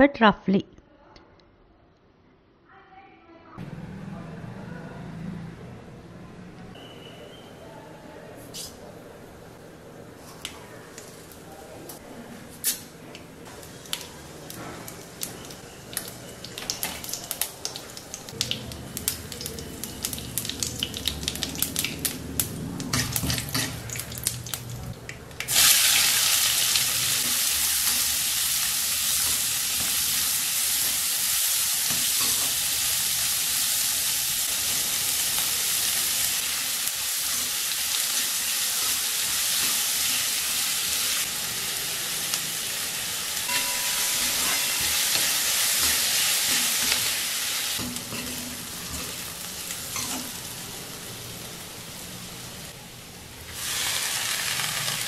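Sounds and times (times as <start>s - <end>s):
spices crackling in hot oil: 13.5s - 52.8s, 53.4s - 55.0s
onions sizzling loudly: 25.5s - 52.8s, 53.5s - 55.0s.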